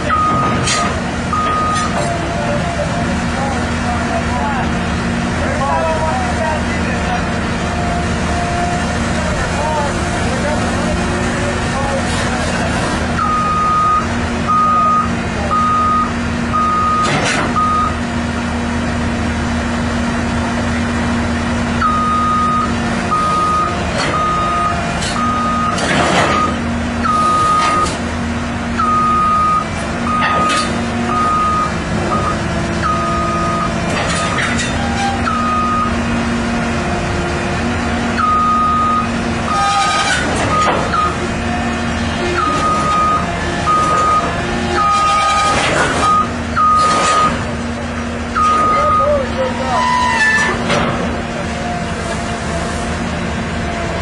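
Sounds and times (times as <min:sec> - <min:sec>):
excavator travel alarm beeping: 0:00.0 - 0:02.3, 0:13.1 - 0:18.1, 0:21.8 - 0:28.0, 0:28.8 - 0:34.3, 0:35.0 - 0:36.0, 0:38.1 - 0:41.3, 0:42.2 - 0:47.5, 0:48.3 - 0:50.1
diesel engine running: 0:00.0 - 0:54.0
loud metal clanks: 0:25.0 - 0:26.6, 0:39.5 - 0:41.2, 0:42.4 - 0:47.6, 0:50.2 - 0:51.2.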